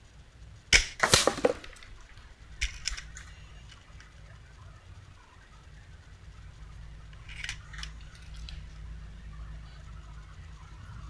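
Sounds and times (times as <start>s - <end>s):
air rifle firing: 0.7s - 3.2s.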